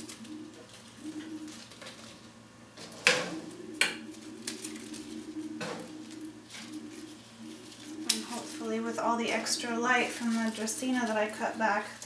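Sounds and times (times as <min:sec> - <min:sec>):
scissors snipping leaves: 0:08.0 - 0:08.7.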